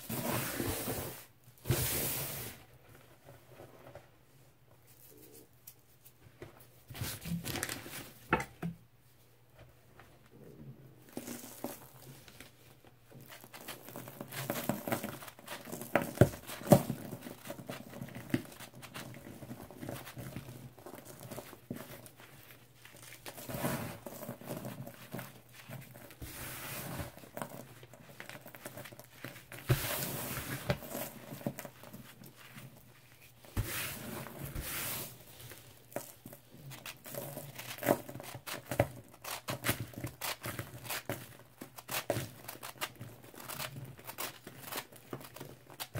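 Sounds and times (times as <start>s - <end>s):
hand crushing powder slab: 13.2s - 45.9s.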